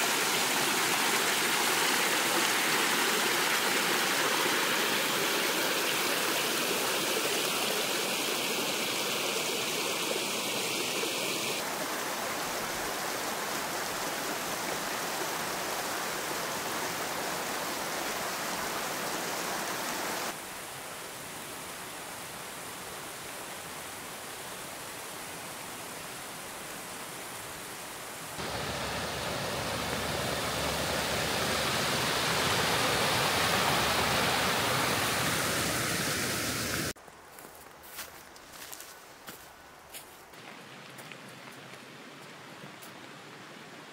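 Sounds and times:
waterfall rushing: 0.0 - 20.4, 28.4 - 37.0.

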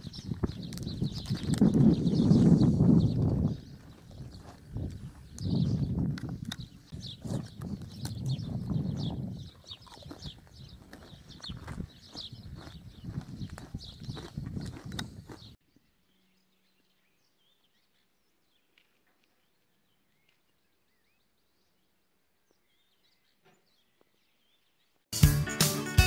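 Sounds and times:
strummed guitar music: 25.1 - 26.0.

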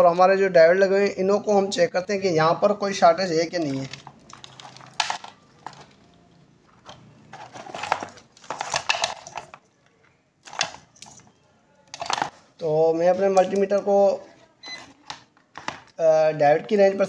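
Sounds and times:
objects rustling and clattering: 3.5 - 13.6, 14.9 - 16.0.

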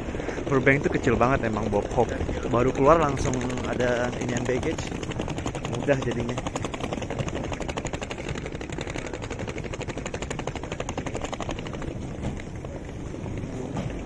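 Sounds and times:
suitcase rolling on concrete: 0.0 - 14.0
suitcase wheels rattling on bricks: 0.0 - 14.0.

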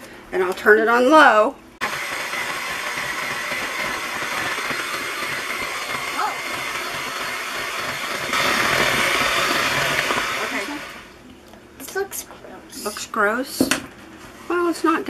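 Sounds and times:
electric hand mixer whirring: 1.8 - 11.2.

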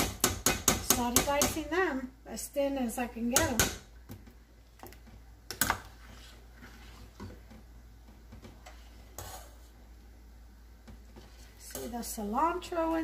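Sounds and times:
metal spoon scraping a pot: 9.1 - 9.6.

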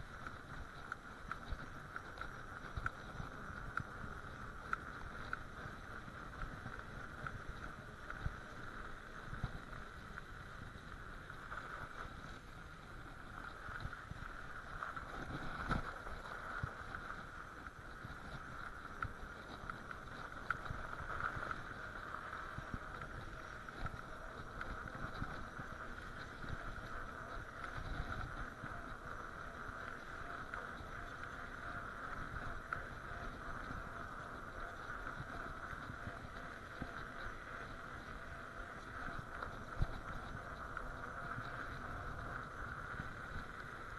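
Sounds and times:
bicycle tyres rolling on snow: 0.0 - 43.9.

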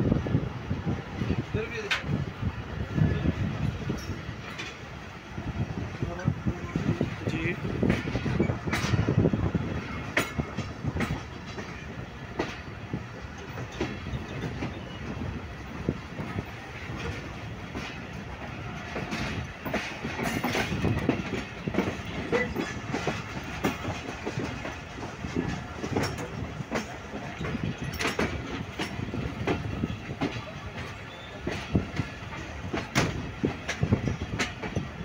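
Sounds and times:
train running rumble: 0.0 - 35.0
wheels clicking over track: 16.2 - 35.0.

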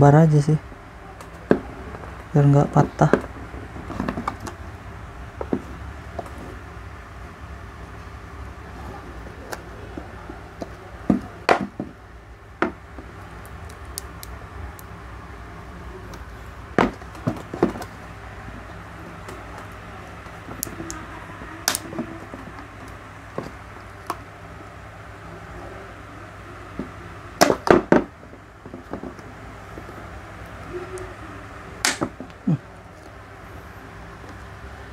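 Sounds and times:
steady low hum: 0.0 - 34.9.

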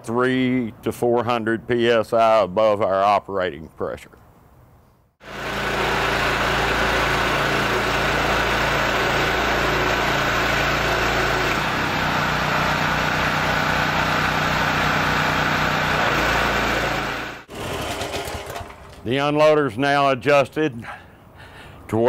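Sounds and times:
pressure washer engine running: 5.2 - 19.0.

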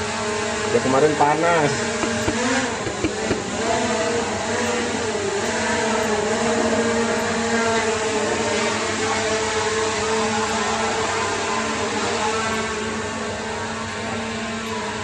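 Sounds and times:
drone propellers buzzing: 1.6 - 13.2.

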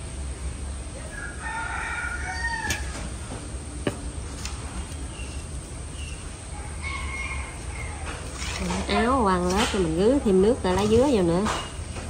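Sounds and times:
rooster crowing: 1.0 - 3.3, 6.5 - 8.4.

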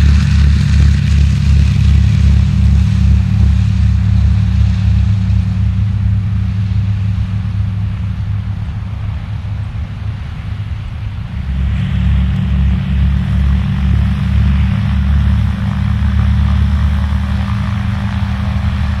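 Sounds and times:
piston aircraft engines droning: 0.0 - 19.0.

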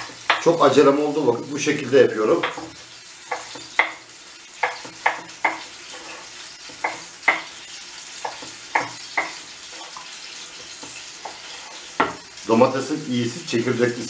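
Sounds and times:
peppers sizzling in a pan: 0.0 - 14.0
knife chopping on wooden board: 4.6 - 5.7, 8.2 - 9.4.

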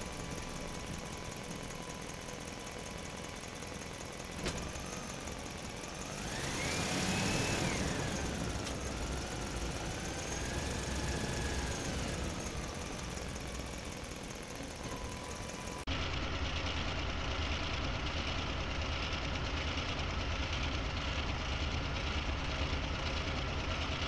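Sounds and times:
small motor whining: 0.0 - 15.9.

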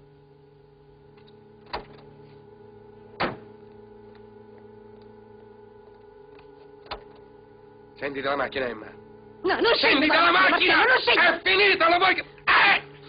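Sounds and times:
steady film soundtrack hum: 0.0 - 13.0.

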